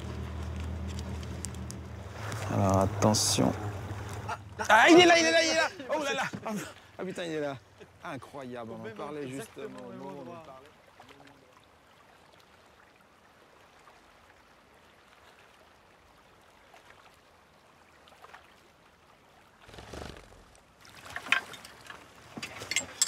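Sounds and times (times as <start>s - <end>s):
water lapping around a boat: 0.0s - 23.0s
short rush of water: 9.1s - 23.0s
sharp knocks and clinks: 22.3s - 23.0s.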